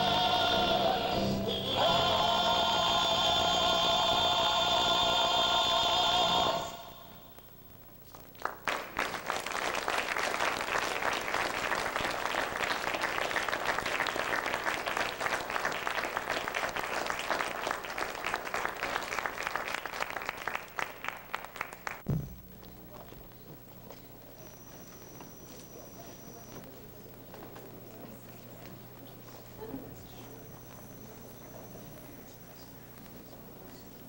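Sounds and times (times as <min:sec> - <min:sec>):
audience applauding: 0:08.4 - 0:22.1
low thump: 0:22.0 - 0:22.5.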